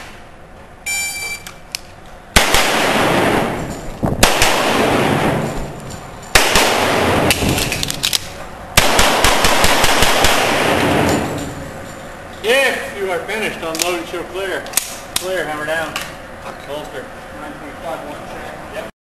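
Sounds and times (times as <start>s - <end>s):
pistol shots echoing indoors: 2.3s - 5.6s, 6.3s - 7.8s, 8.8s - 11.6s.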